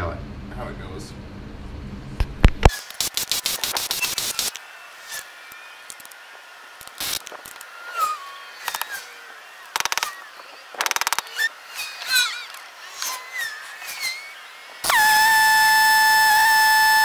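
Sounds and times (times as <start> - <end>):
rapid rattling clicks: 9.7 - 10.2, 10.8 - 11.3.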